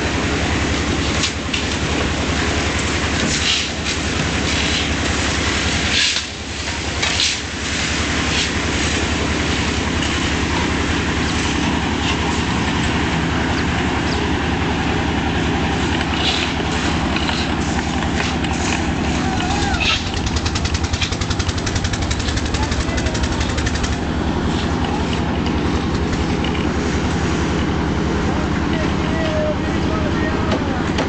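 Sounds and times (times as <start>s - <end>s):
engine running with rattle: 0.0s - 31.0s.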